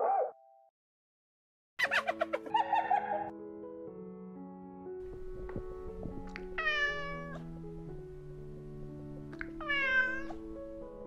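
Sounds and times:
soft background music: 1.8s - 11.0s
cat meowing: 6.4s - 7.5s, 9.4s - 10.4s.

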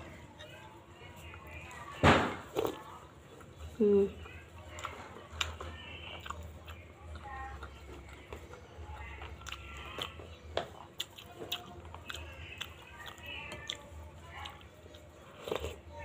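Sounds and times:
wet chewing and biting: 4.6s - 16.0s.

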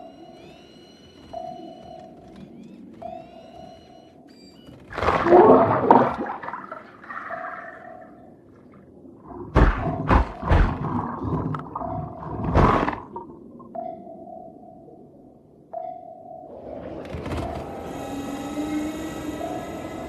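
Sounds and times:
soft sonar ping: 11.7s - 17.0s.

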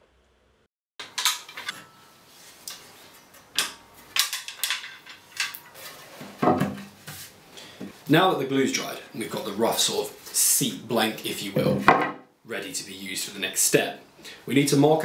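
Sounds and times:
metal clamps clinking: 1.0s - 2.0s, 3.6s - 5.7s.

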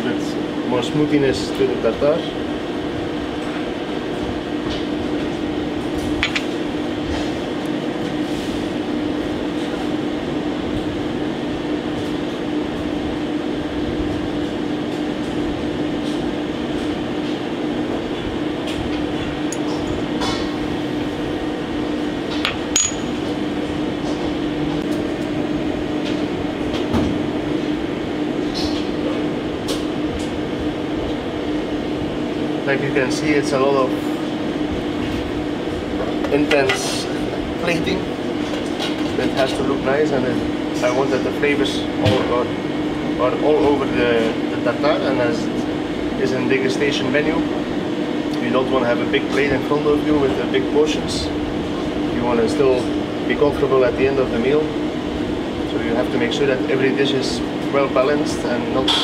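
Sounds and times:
air conditioning hum: 0.0s - 59.0s
tweezers clinking on plate: 22.8s - 23.2s.

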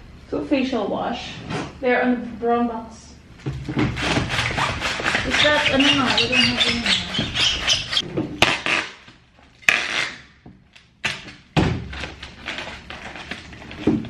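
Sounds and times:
plastic packaging crinkling: 11.9s - 14.0s.

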